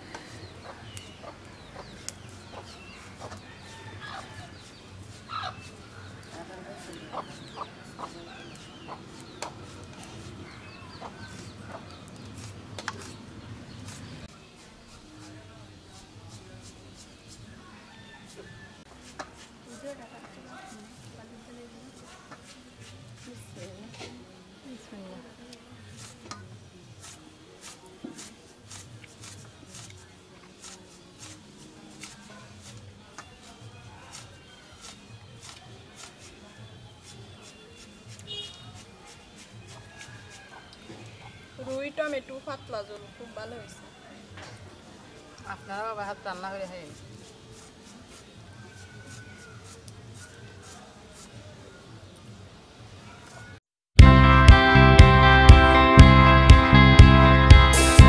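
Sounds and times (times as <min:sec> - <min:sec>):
small birds chirping: 0:00.0 - 0:53.6
hens clucking: 0:06.4 - 0:09.1
fingers squishing rice and curry: 0:25.8 - 0:41.5, 0:46.9 - 0:51.8.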